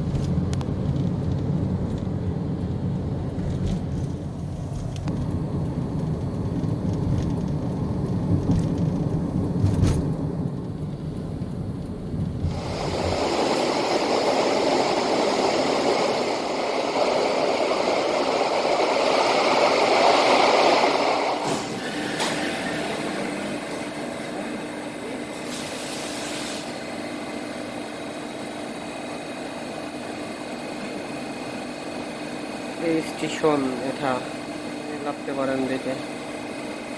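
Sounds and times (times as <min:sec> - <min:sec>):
vehicle road and wind noise: 0:00.0 - 0:13.3
train interior hum: 0:00.0 - 0:36.9
brief hiss: 0:25.3 - 0:26.8.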